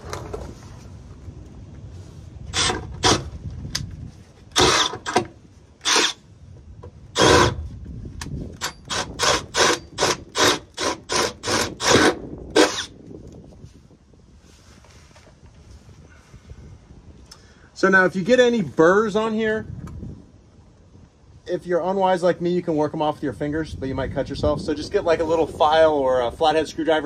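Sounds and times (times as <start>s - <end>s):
cordless drill boring sheet metal: 4.5s - 6.2s, 8.6s - 12.9s.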